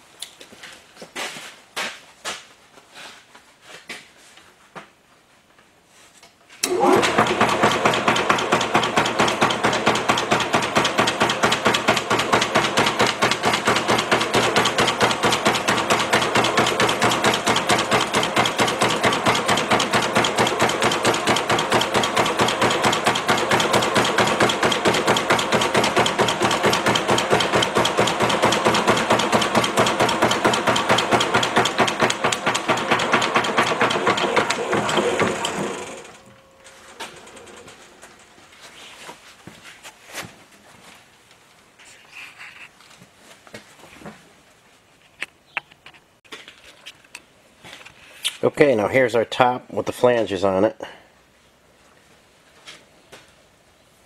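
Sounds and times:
machine dies striking steel sheet: 0:06.8 - 0:37.8.

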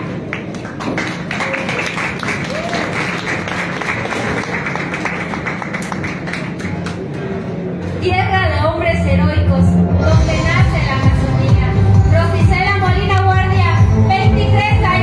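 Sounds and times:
audience applauding: 0:00.0 - 0:07.0
background music: 0:08.1 - 0:15.0.

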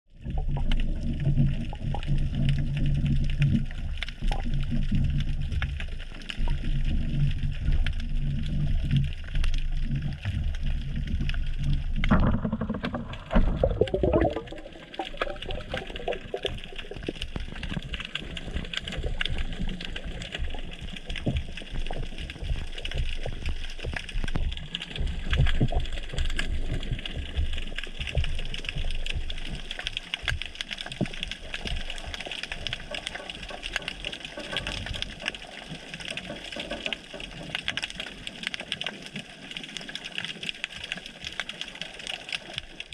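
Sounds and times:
low underwater rumble: 0:00.1 - 0:40.0
bubbling gurgles: 0:00.1 - 0:42.9
crackle of small clicks: 0:00.1 - 0:42.9
soft low thumps: 0:10.0 - 0:17.0.

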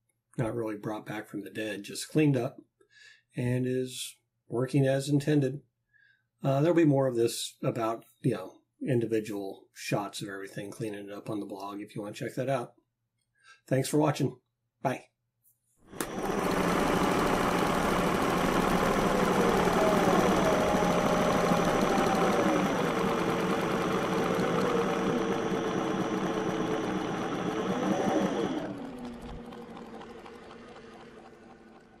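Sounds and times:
engine idling: 0:16.0 - 0:32.0.

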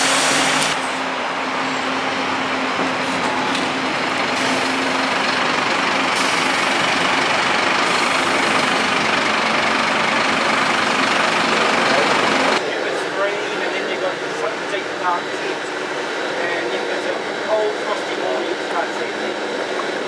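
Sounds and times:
bus engine running: 0:00.0 - 0:20.0.

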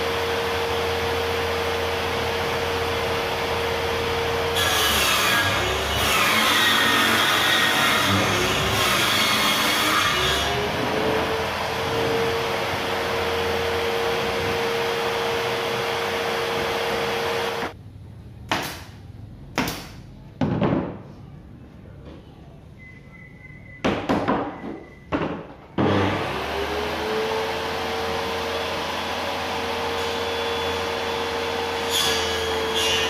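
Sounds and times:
table saw whining: 0:00.0 - 0:17.8, 0:25.8 - 0:33.0.

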